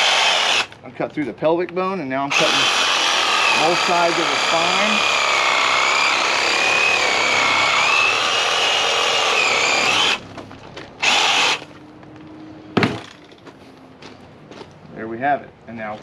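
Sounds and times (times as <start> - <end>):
power saw cutting bone: 0.0 - 0.8, 2.3 - 10.3, 11.0 - 11.7.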